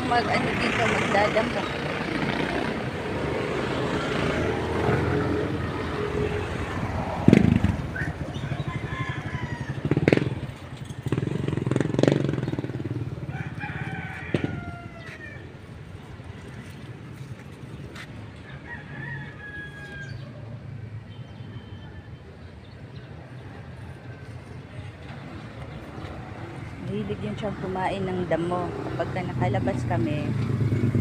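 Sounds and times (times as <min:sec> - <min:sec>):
rooster crowing: 0:08.0 - 0:10.0, 0:13.2 - 0:15.5, 0:18.4 - 0:20.6.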